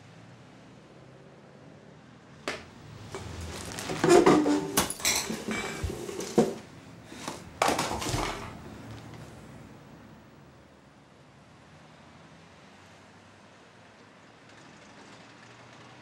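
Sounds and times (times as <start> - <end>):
bowl and cutlery clinking: 2.5 - 8.6.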